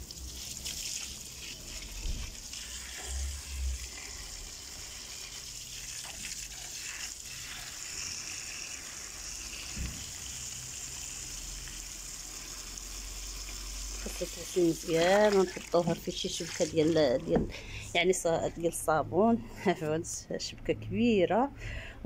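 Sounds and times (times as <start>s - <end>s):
water splashing over leaves: 0.0s - 17.4s.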